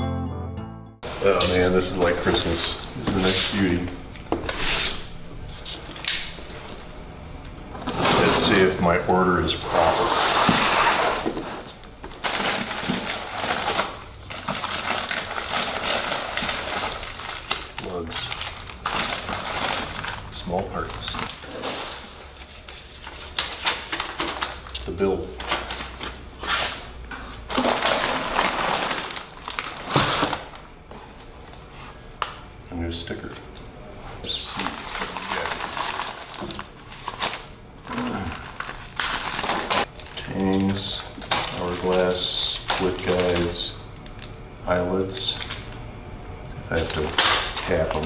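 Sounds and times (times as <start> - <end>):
cardboard and paper crinkling: 1.4 - 5.0, 9.7 - 26.8, 27.4 - 31.7, 34.4 - 44.3, 46.7 - 48.0.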